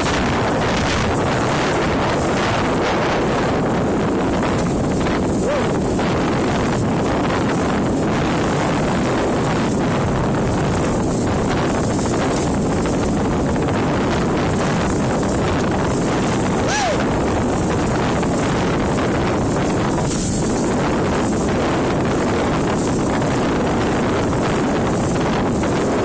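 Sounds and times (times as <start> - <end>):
boat hull and water noise: 0.0 - 26.0
wind buffeting microphone: 0.0 - 26.0.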